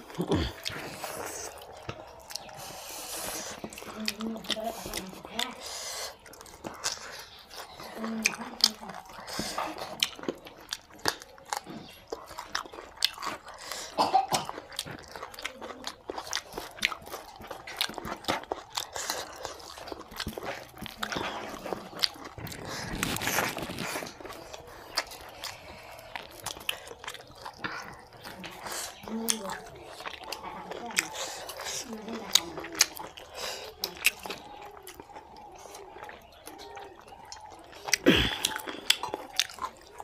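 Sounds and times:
wet chewing and lip smacking: 0.0 - 40.0.

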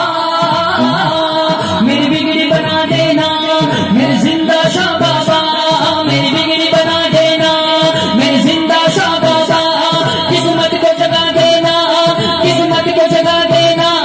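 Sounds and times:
instrumental accompaniment: 0.0 - 14.0
person singing devotional song: 0.0 - 14.0.

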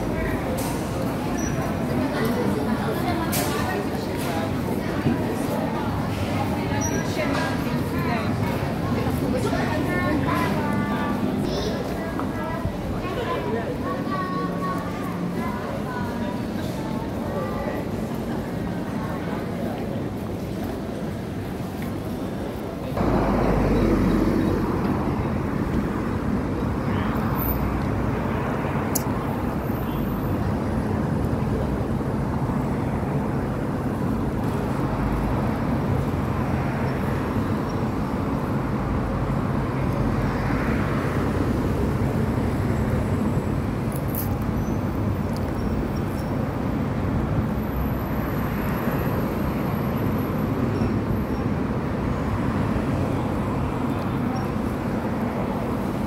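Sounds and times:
road traffic noise: 0.0 - 56.0
cars driving past: 23.0 - 56.0.

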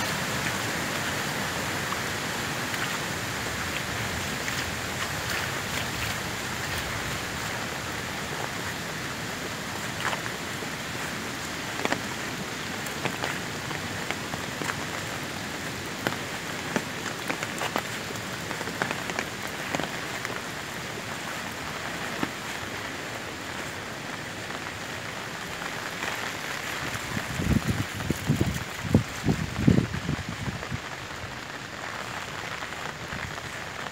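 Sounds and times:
rain on a dirt road: 0.0 - 33.9
raindrop ticks: 9.8 - 21.0.

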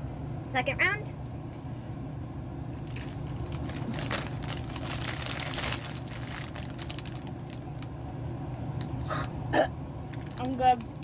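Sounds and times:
steady low hum: 0.0 - 11.0
plastic bag crinkling: 2.8 - 7.9, 10.0 - 11.0.

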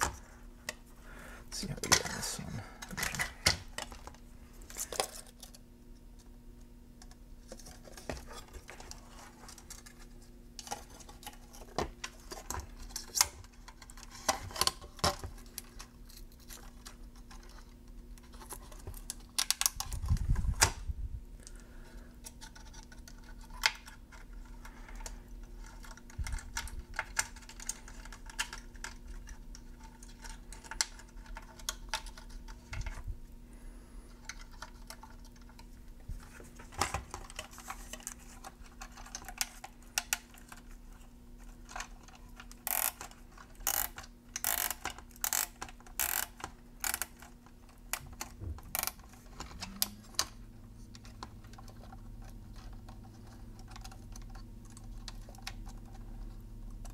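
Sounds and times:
faint steady hum: 0.0 - 56.9
clicks of handling wires: 2.8 - 5.6, 22.2 - 33.1.

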